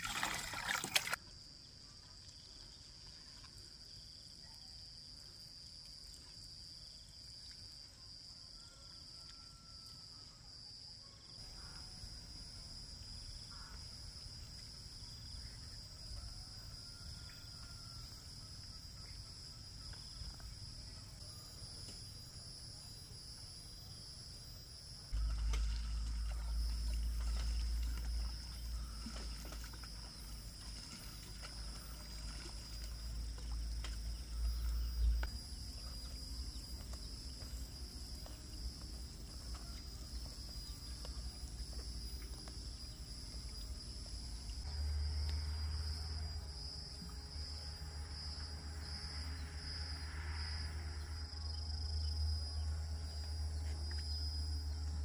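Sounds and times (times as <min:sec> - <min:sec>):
insects trilling: 0:00.0 - 0:55.0
loud low rumble: 0:25.2 - 0:28.9.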